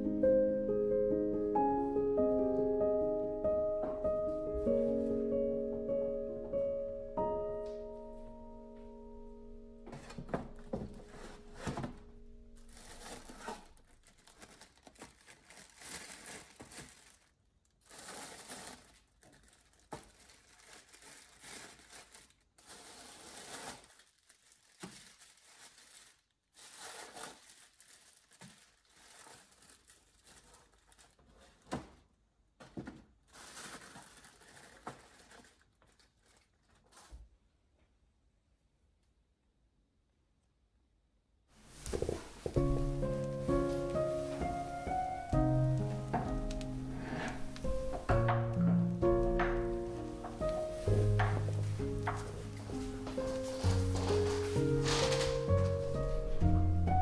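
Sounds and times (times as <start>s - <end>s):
plastic bags crinkling: 9.9s - 31.8s, 33.2s - 37.1s, 41.6s - 57.0s.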